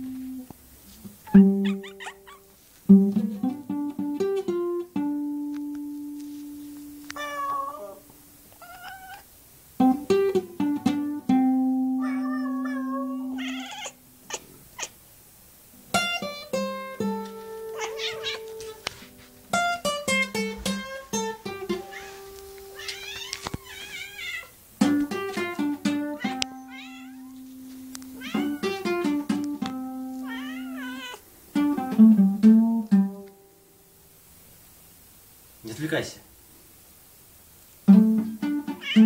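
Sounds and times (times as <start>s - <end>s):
cat meowing: 1.2s - 2.5s, 7.1s - 9.3s, 11.9s - 15.0s, 17.7s - 18.9s, 21.7s - 24.6s, 26.2s - 27.4s, 28.1s - 29.0s, 30.2s - 31.2s, 38.7s - 39.0s
plucked acoustic string notes: 1.3s - 2.2s, 2.9s - 7.0s, 9.8s - 12.0s, 15.8s - 22.9s, 24.8s - 30.8s, 31.5s - 33.6s, 37.9s - 39.0s.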